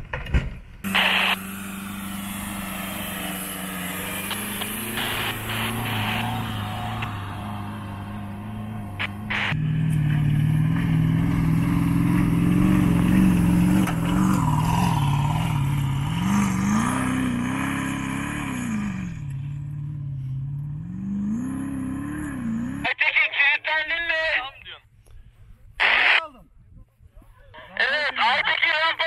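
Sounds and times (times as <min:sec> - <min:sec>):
suv engines revving: 0:00.8 - 0:23.1.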